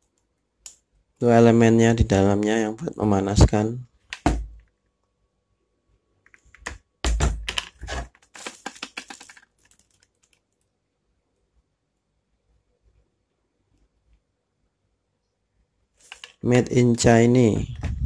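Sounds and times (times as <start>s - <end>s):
plastic clicks and knocks: 4.1s - 4.7s, 6.3s - 10.4s.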